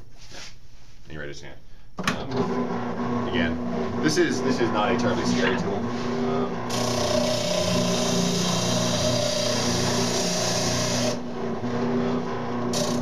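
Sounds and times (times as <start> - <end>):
spindle sander humming: 3.0 - 13.0.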